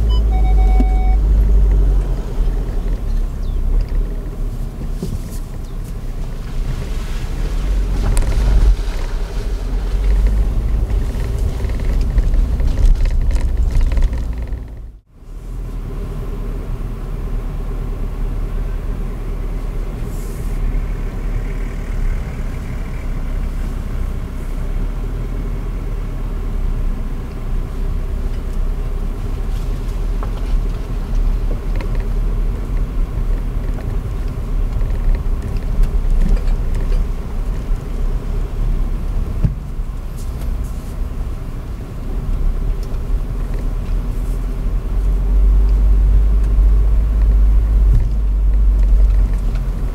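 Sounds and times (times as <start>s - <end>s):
engine and road rumble: 0.0s - 49.9s
short knocks and rattles: 10.0s - 15.0s.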